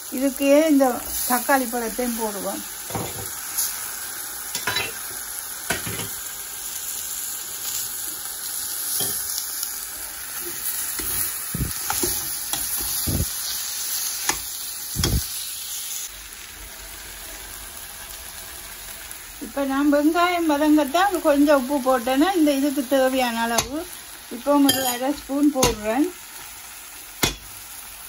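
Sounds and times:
food sizzling in a pot: 0.0s - 28.0s
metal spatula scraping pot: 24.6s - 25.9s.

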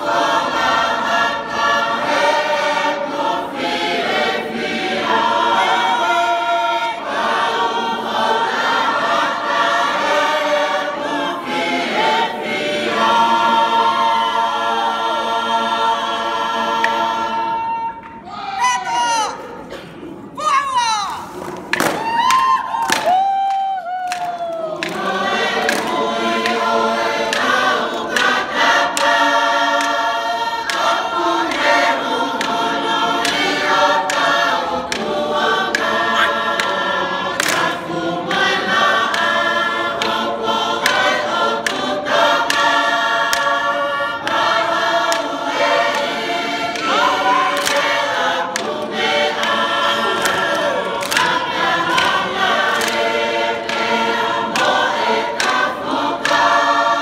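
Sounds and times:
large mixed choir singing: 0.0s - 18.4s, 24.1s - 57.0s
sharp hand claps: 21.6s - 26.7s, 37.4s - 37.8s, 46.7s - 53.9s.

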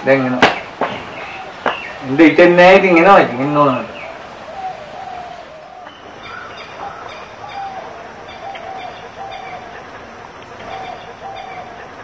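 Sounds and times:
outdoor ambience: 0.0s - 12.0s
birds calling short notes: 3.5s - 12.0s.

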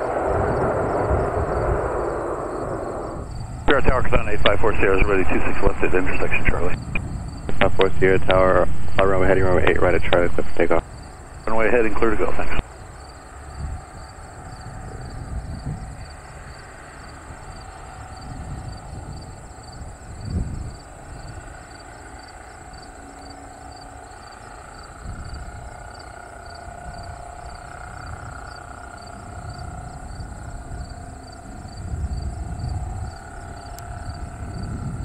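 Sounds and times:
low rumbling surges: 0.0s - 12.6s
light aircraft engine droning: 0.0s - 35.0s.

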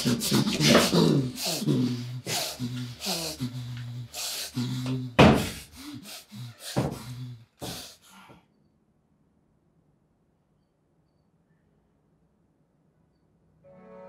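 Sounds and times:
sharp breaths: 0.0s - 8.5s.

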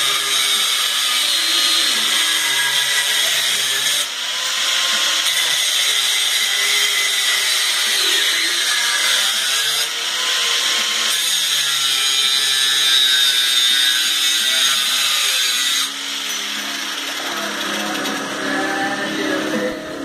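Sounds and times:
cutting wheel whining through steel: 0.0s - 20.0s.

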